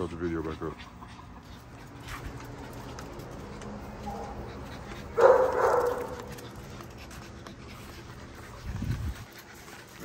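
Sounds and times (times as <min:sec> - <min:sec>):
dog barking loudly: 0:05.1 - 0:06.3.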